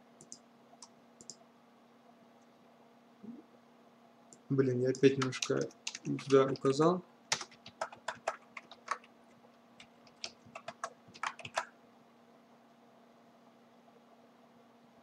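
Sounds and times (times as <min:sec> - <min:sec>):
computer keyboard typing: 0:05.0 - 0:09.1, 0:09.8 - 0:11.7.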